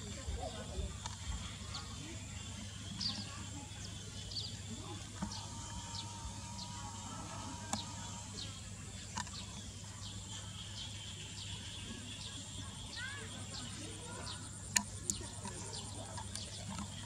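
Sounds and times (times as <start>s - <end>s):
insects droning: 0.0s - 17.0s
faint clicks: 14.7s - 17.0s.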